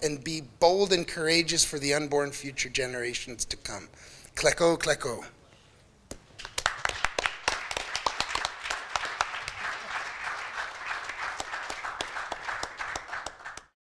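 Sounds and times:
audience applauding: 0:06.4 - 0:13.8.

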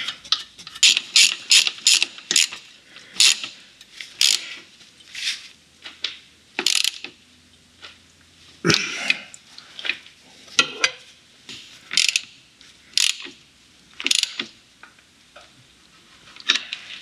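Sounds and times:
ratchet wrench clicking: 0:00.7 - 0:02.6, 0:03.2 - 0:03.6, 0:04.2 - 0:04.6, 0:06.6 - 0:07.2, 0:11.9 - 0:12.3, 0:13.0 - 0:13.4, 0:14.0 - 0:14.5.

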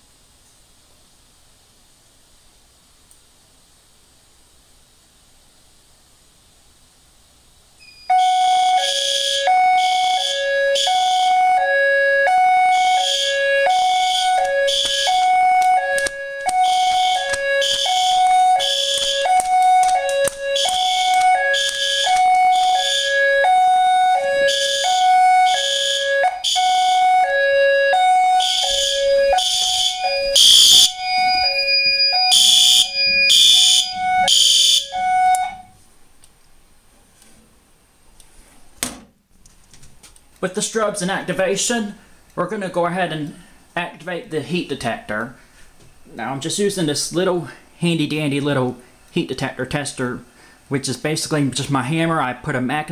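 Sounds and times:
two-tone alarm signal: 0:07.8 - 0:35.8
alarm horn buzzy blasts: 0:08.0 - 0:35.8.

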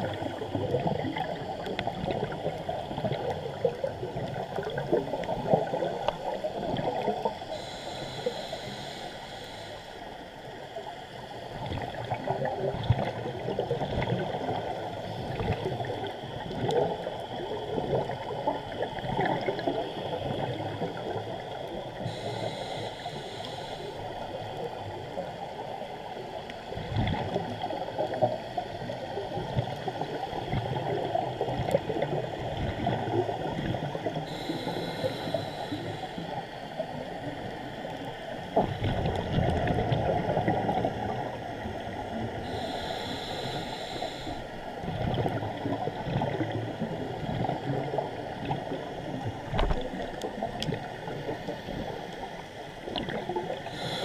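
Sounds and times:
underwater bubbles gurgling: 0:00.0 - 0:54.0
regulator inhale hiss: 0:05.2 - 0:11.4, 0:19.3 - 0:26.6, 0:33.9 - 0:38.1, 0:41.2 - 0:44.8, 0:53.4 - 0:54.0.

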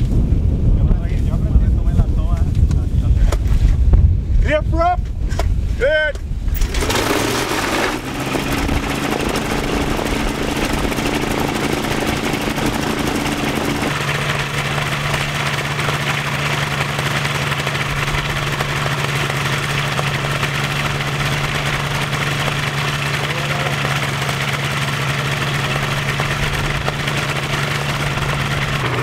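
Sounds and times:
propeller engine idling: 0:06.2 - 0:29.0.

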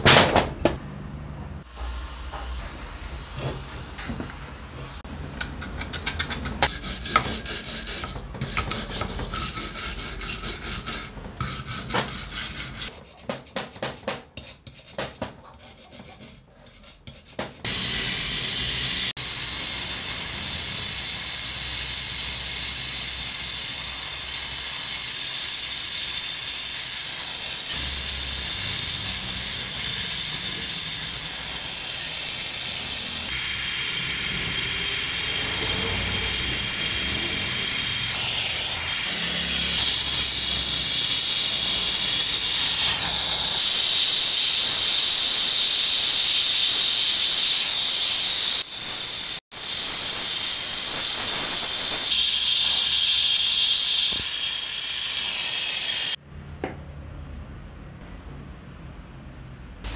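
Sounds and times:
file rubbing on metal: 0:05.6 - 0:17.7
welding torch hissing: 0:17.6 - 0:56.2.

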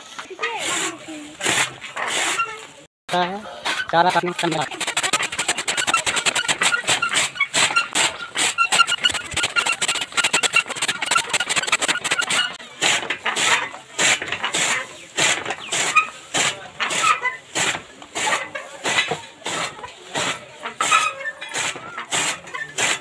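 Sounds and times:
fodder chopping strokes: 0:00.6 - 0:02.4, 0:03.7 - 0:23.0
squeaks: 0:02.0 - 0:02.8, 0:03.7 - 0:12.6, 0:20.8 - 0:23.0
chaff cutter blades clattering: 0:03.2 - 0:23.0.

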